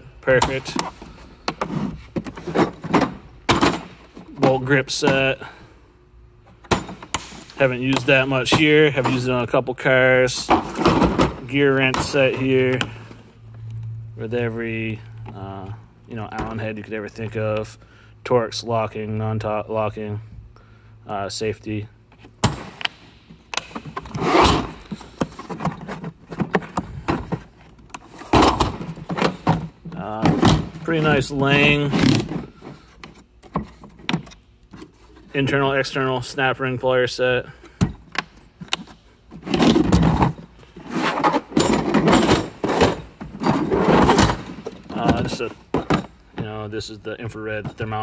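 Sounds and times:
plastic cases scraping and rattling: 0.3s - 5.3s, 10.3s - 13.0s, 23.6s - 35.6s, 38.7s - 46.2s
plastic case scraping: 39.4s - 46.0s.

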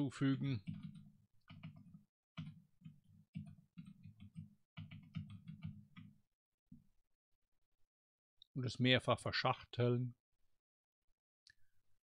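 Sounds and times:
computer keyboard typing: 0.6s - 6.2s.

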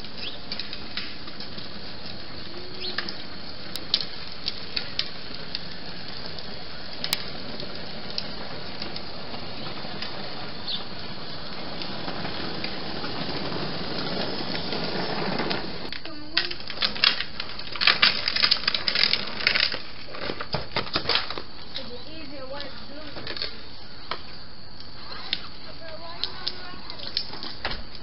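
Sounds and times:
outdoor background hiss: 0.0s - 28.0s.

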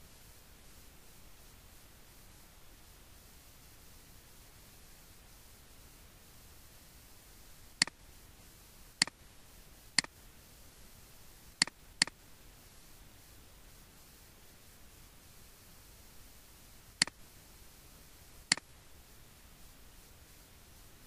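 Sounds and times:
faint hiss: 0.0s - 21.0s
mouse button clicks: 7.8s - 8.0s, 10.0s - 10.2s.

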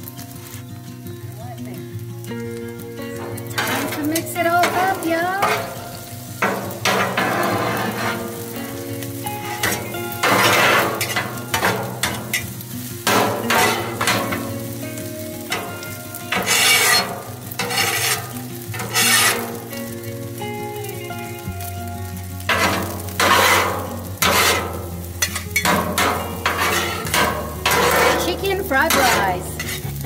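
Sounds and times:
food sizzling: 0.0s - 30.0s
spatulas scraping a metal griddle: 3.2s - 14.8s, 15.4s - 20.0s, 22.4s - 30.0s.

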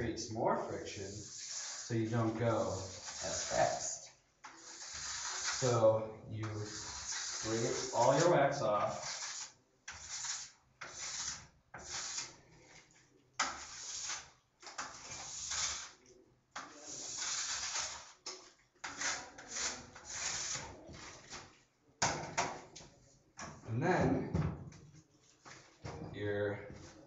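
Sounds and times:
wax scraper rasping on ski: 1.1s - 5.8s, 6.4s - 12.4s, 13.4s - 16.0s, 16.6s - 18.2s, 18.8s - 20.8s.

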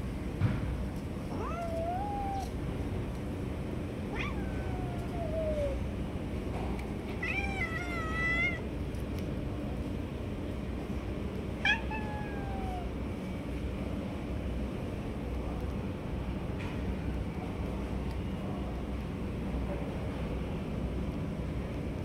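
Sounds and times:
low background noise: 0.0s - 22.0s
cats meowing: 1.3s - 2.6s, 4.0s - 5.8s, 7.1s - 8.7s, 11.6s - 13.0s.

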